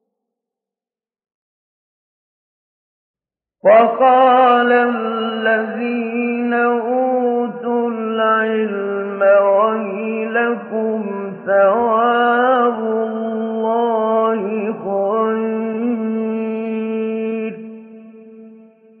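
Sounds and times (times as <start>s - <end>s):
man reciting melodically: 3.6s - 18.6s.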